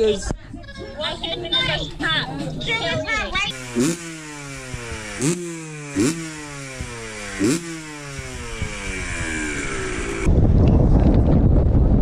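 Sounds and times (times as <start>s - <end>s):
loud low engine rumble: 3.2s - 12.0s
motorcycle engine revving: 3.5s - 11.0s.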